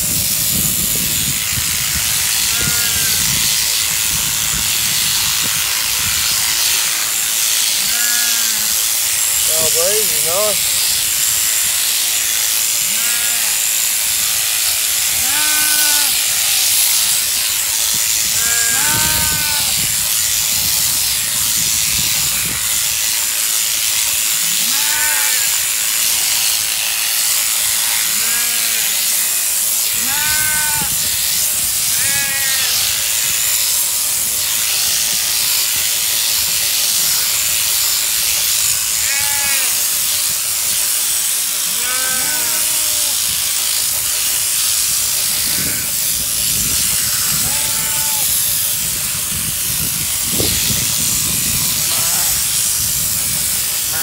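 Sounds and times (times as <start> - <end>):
shearing handpiece buzzing: 0.0 - 54.0
sheep bleating: 2.4 - 3.3, 7.8 - 8.8, 12.8 - 13.8, 15.0 - 16.2, 18.4 - 19.8, 24.6 - 25.8, 27.6 - 29.0, 30.0 - 31.0, 31.9 - 32.8, 38.9 - 39.9, 41.6 - 43.2, 46.9 - 48.4, 51.8 - 52.6.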